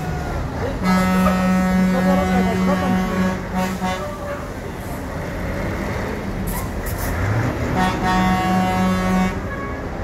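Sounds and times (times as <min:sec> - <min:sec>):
diesel trucks running: 0:00.0 - 0:10.0
truck horn blowing: 0:00.8 - 0:04.5, 0:07.6 - 0:10.0.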